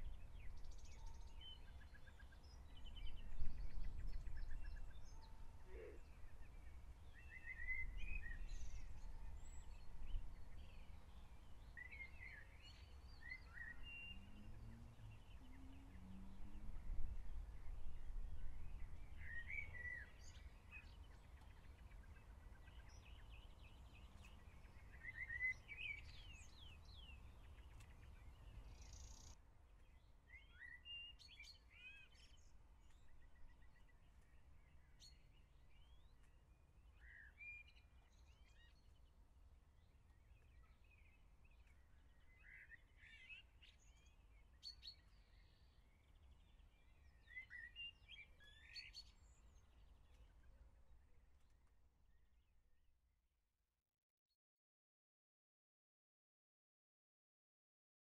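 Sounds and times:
small birds chirping: 18.5s - 52.4s.

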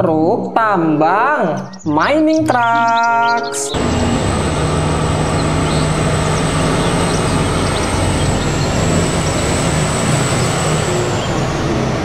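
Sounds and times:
high-pitched whine: 2.4s - 12.0s
dump truck driving by: 3.7s - 12.0s
tyre and road noise: 3.7s - 12.0s.

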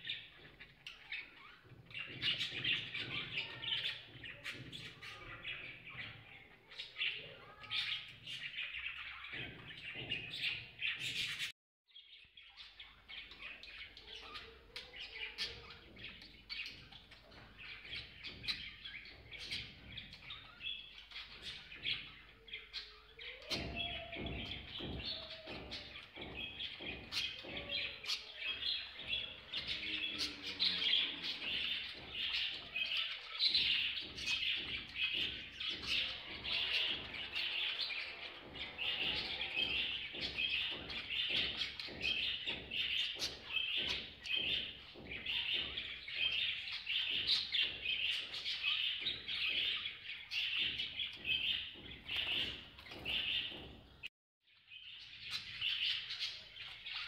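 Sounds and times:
budgerigars chattering and chirping: 12.5s - 53.6s.

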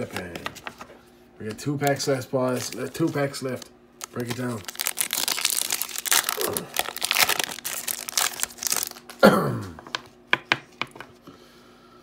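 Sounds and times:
foil pack tearing and crinkling: 2.5s - 9.2s.

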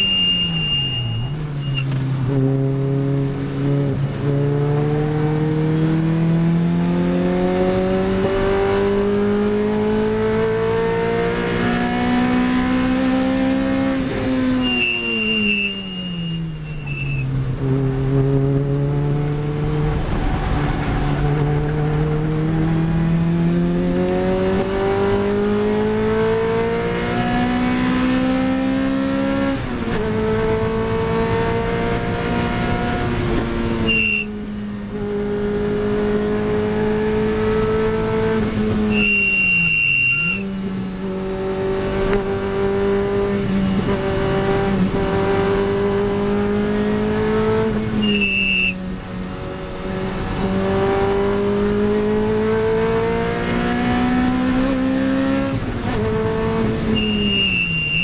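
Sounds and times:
short high-pitched tone: 0.0s - 1.8s, 14.6s - 17.2s
car engine at full throttle: 0.0s - 58.0s.

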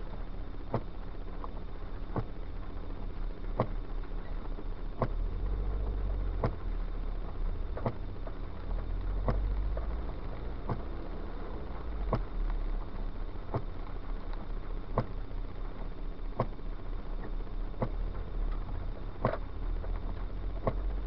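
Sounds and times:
car rumble from inside: 0.0s - 21.0s
windshield wiper knocking: 0.7s - 1.0s, 2.1s - 2.4s, 3.6s - 3.8s, 5.0s - 5.2s, 6.3s - 6.6s, 7.7s - 8.4s, 9.1s - 11.0s, 12.0s - 12.4s, 13.4s - 13.8s, 14.9s - 15.2s, 16.3s - 16.6s, 17.2s - 21.0s.

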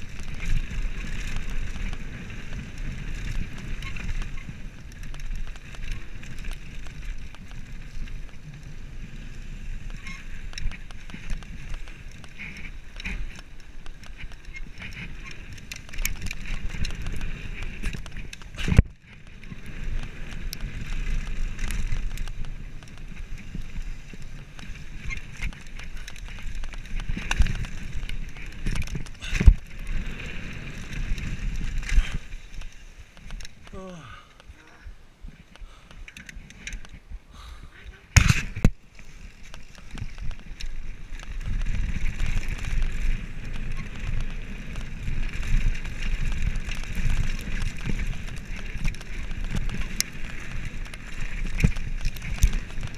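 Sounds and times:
bike rattling and clicking: 0.0s - 52.9s
bike tyres rumbling on gravel: 0.0s - 52.9s.

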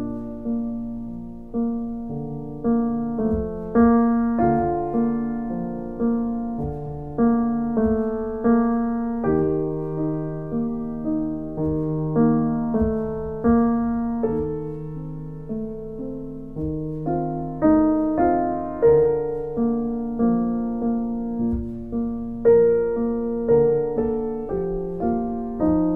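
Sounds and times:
gentle solo piano piece: 0.0s - 25.9s.

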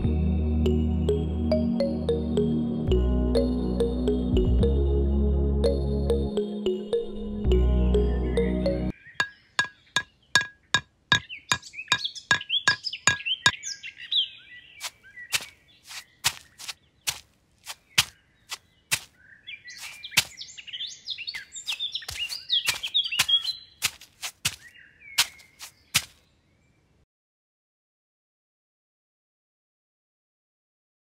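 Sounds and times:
birds chirping: 7.5s - 26.8s.

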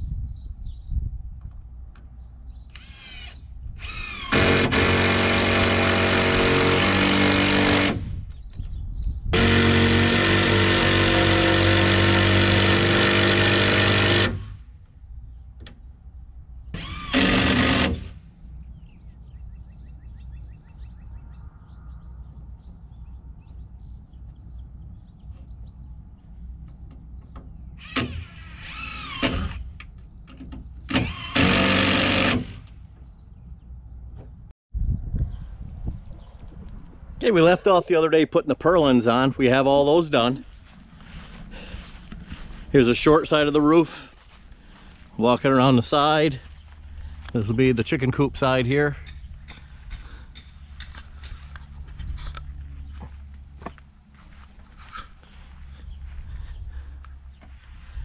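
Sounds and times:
power drill driving screws: 2.7s - 8.1s, 9.4s - 14.6s, 16.7s - 18.2s, 27.8s - 29.9s, 30.5s - 32.8s.

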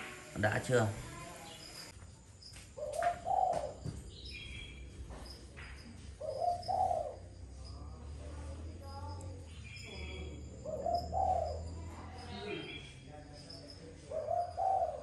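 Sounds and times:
faint high bird chirps: 0.0s - 15.0s
dove cooing: 2.8s - 3.9s, 6.2s - 7.5s, 9.9s - 12.8s, 14.0s - 15.0s.

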